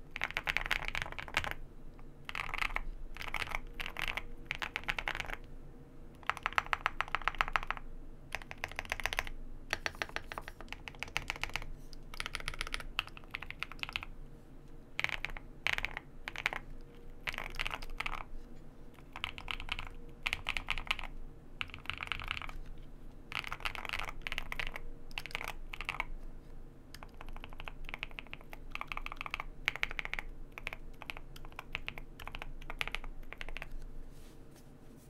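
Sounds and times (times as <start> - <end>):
mechanical keyboard typing: 0.1 - 1.6, 2.2 - 5.5, 6.2 - 14.1, 15.0 - 18.3, 19.0 - 22.6, 23.3 - 26.1, 26.9 - 33.8.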